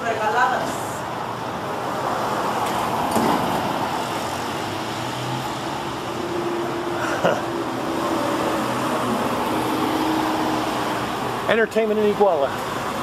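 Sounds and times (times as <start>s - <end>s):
cars and motorcycles passing: 0.2s - 13.0s.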